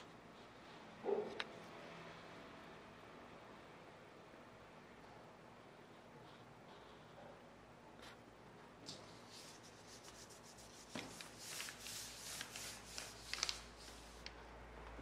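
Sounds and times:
hand rubbing paper: 8.9s - 14.3s.

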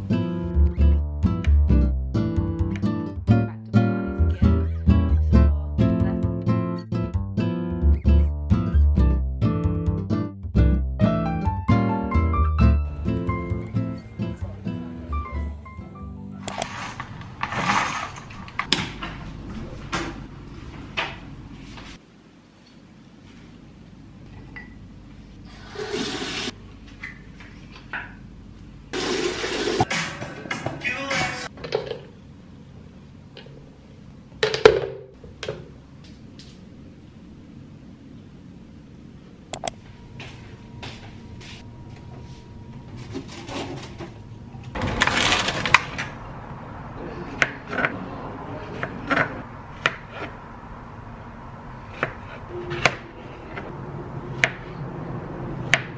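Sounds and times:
sharp click: 39.6s - 39.8s.

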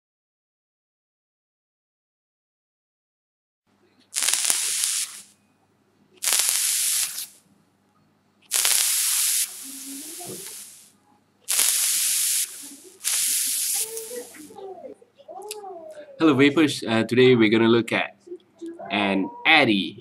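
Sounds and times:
vape hissing: 4.2s - 5.3s, 6.2s - 7.4s, 8.5s - 14.6s.

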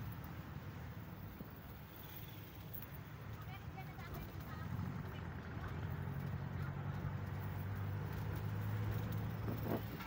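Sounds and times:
vehicle engine low drone: 4.5s - 10.0s.

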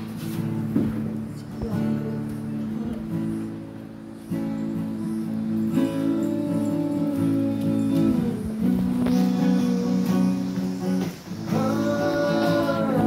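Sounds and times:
acoustic guitar strumming: 0.0s - 13.0s
men singing together: 5.9s - 13.0s.

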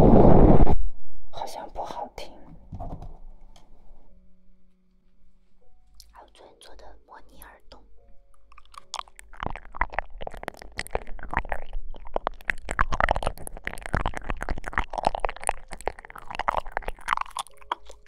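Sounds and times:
wet mouth sucking and licking: 8.3s - 18.0s.

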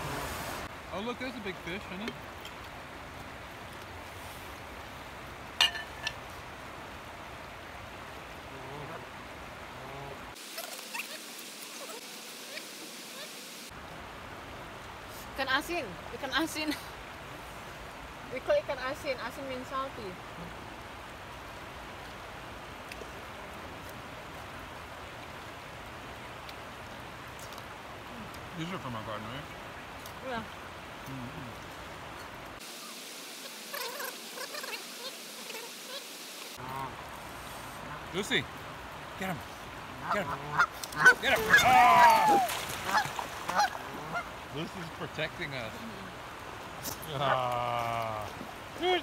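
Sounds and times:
water washing along shoreline: 0.0s - 49.0s
water lapping: 33.4s - 49.0s
geese calling: 40.0s - 42.1s, 42.8s - 44.4s.

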